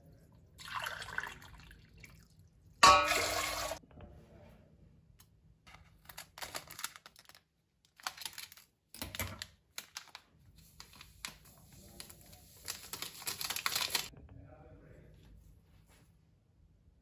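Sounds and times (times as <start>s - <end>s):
paper sachet crinkling: 5.7s - 14.1s.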